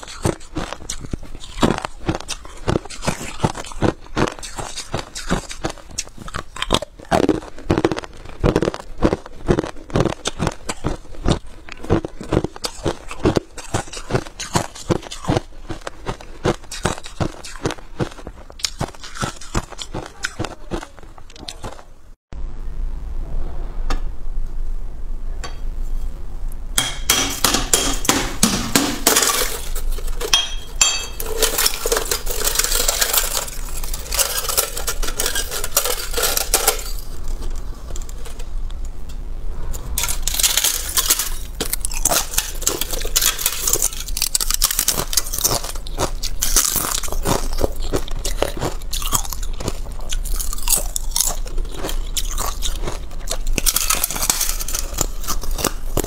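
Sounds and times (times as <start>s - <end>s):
ice cracking and crunching: 29.0s - 30.4s, 31.2s - 38.6s, 40.0s - 56.0s.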